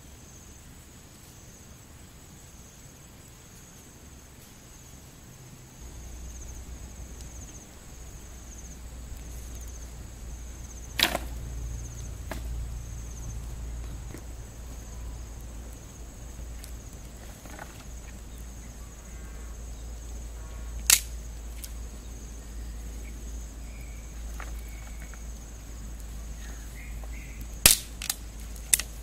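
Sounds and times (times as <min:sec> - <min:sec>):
insect trills: 0:00.0 - 0:29.0
wood fire rumbling: 0:04.1 - 0:29.0
wood cracking: 0:06.2 - 0:18.8, 0:20.8 - 0:21.9, 0:23.8 - 0:29.0.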